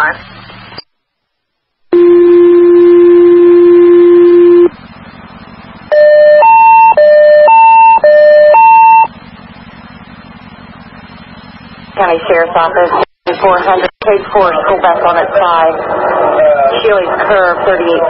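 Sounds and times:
radio channel hiss: 0:00.0 - 0:00.9
long low alert tone: 0:01.9 - 0:12.6.

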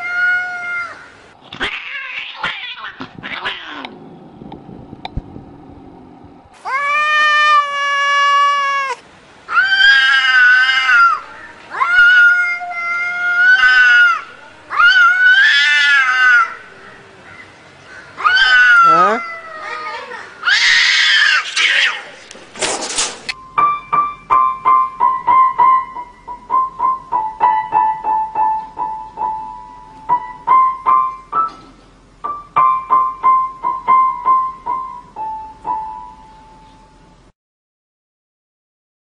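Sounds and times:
cats yowling: 0:00.0 - 0:03.9, 0:06.6 - 0:16.6, 0:18.1 - 0:22.2.

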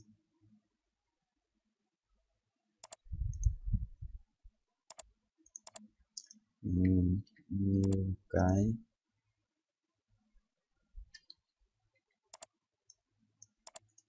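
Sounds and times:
computer mouse clicks: 0:02.8 - 0:03.6, 0:04.9 - 0:06.4, 0:12.3 - 0:14.0
low muffled rumble: 0:03.1 - 0:04.2
man humming: 0:06.6 - 0:08.8.

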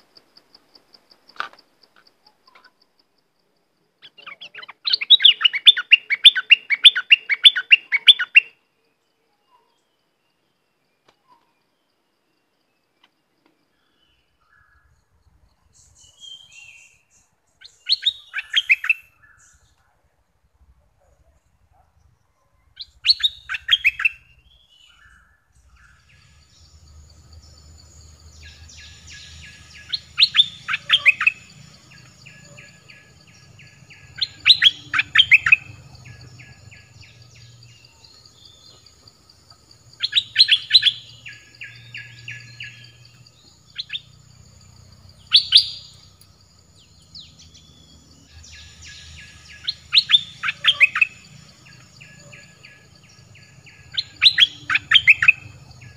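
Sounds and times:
bird singing whistled notes: 0:04.0 - 0:08.6, 0:13.8 - 0:19.8, 0:22.5 - 0:39.1, 0:39.7 - 0:55.9
high insect-like hum: 0:25.6 - 0:55.9
bird chattering trills: 0:25.9 - 0:37.8, 0:48.3 - 0:55.9.

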